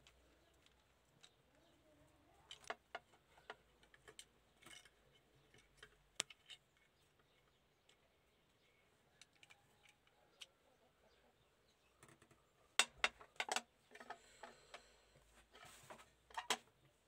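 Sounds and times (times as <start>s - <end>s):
plastic parts clicking together: 2.5s - 8.0s, 9.2s - 10.5s, 12.0s - 14.6s, 16.3s - 16.8s.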